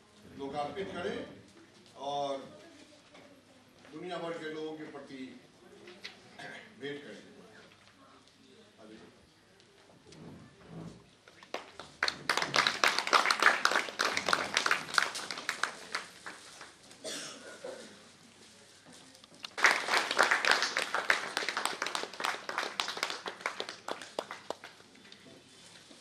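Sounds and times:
audience applauding: 0:11.5 - 0:16.8, 0:19.4 - 0:24.9.

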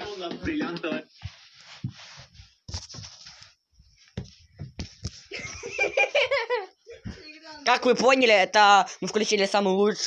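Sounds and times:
people giggling and laughing: 0:05.3 - 0:07.1.

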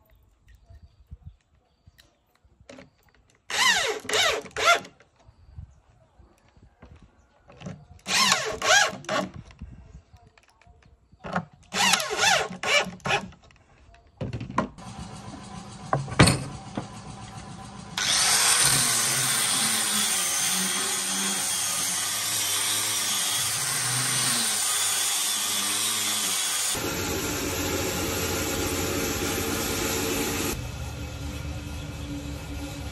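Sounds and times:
electric drill bursts: 0:03.5 - 0:04.8, 0:08.0 - 0:09.0, 0:18.0 - 0:30.6
angle grinder sanding wood: 0:18.0 - 0:30.6.

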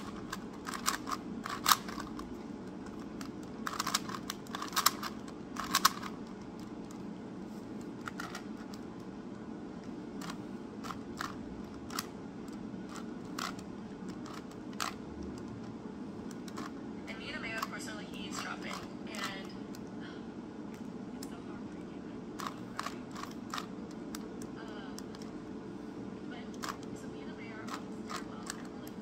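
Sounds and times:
puzzle cube clicking: 0:00.0 - 0:07.1, 0:07.8 - 0:09.1, 0:09.8 - 0:16.8, 0:22.4 - 0:25.4, 0:26.5 - 0:26.9, 0:27.7 - 0:29.0
steady low hum: 0:00.0 - 0:29.0.

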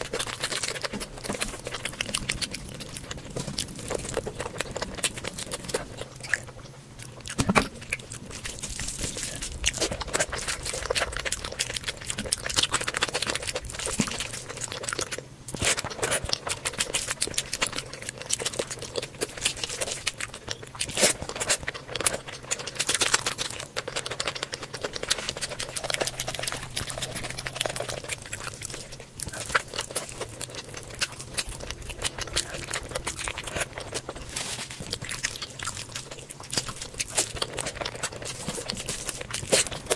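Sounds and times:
wet chewing and smacking: 0:00.0 - 0:39.9.

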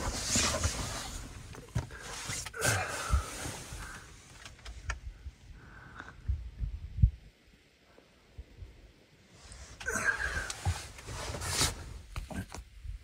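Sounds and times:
fabric rustling: 0:00.0 - 0:04.0.

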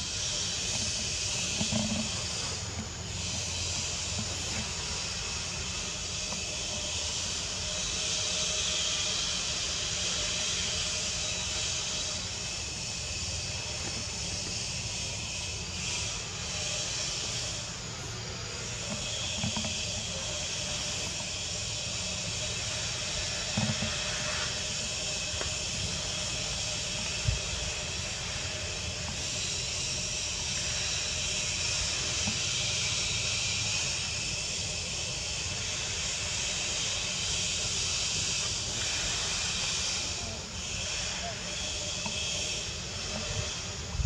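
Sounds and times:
insects buzzing: 0:00.0 - 0:44.0.

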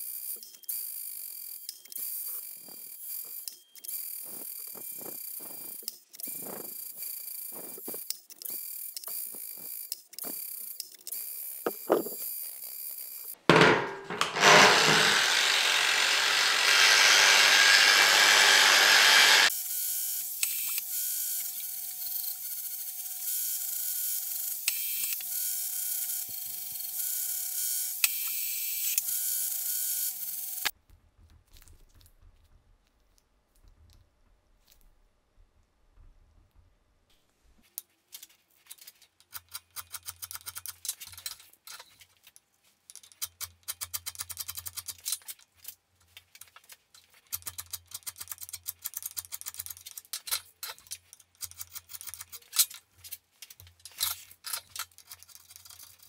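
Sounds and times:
angle grinder grinding metal: 0:01.5 - 0:30.7.

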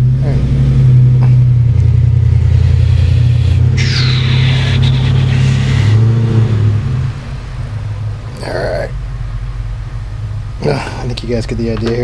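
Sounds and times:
low mechanical hum: 0:00.0 - 0:12.0
bright high-pitched noise: 0:03.8 - 0:06.0.

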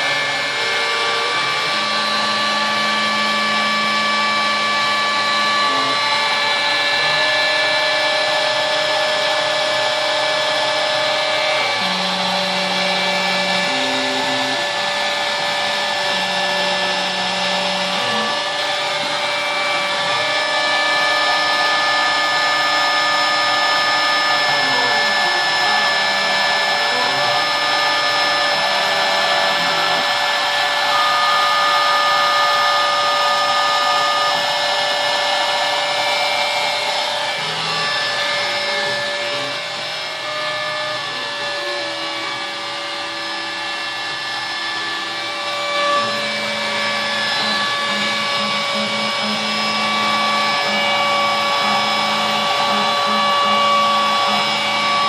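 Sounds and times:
router motor running: 0:00.0 - 0:55.0
stepper motor tones: 0:00.0 - 0:55.0.

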